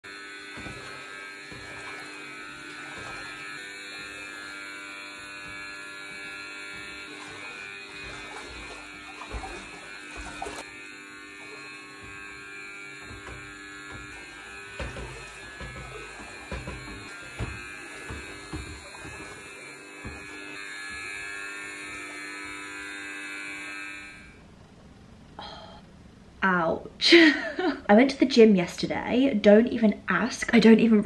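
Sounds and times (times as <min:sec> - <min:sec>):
electrical buzz: 0:00.0 - 0:24.6
wading through floodwater: 0:00.6 - 0:12.4.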